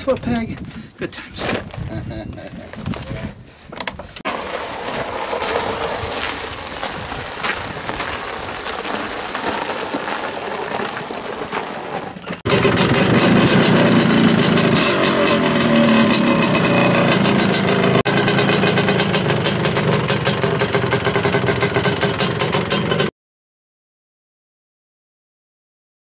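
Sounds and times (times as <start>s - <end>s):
two-stroke engine popping: 4.2s - 23.1s.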